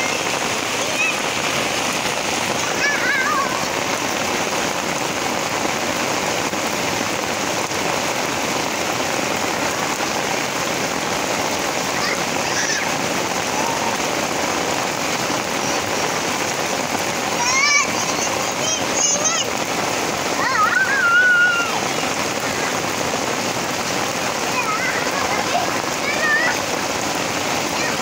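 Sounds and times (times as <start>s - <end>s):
heavy rain on wet pavement: 0.0s - 28.0s.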